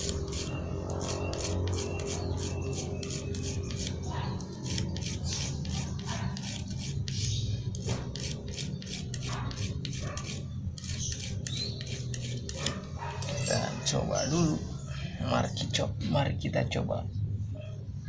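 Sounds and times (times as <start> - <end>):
file rasping on metal: 0.0 - 4.0, 4.6 - 12.8.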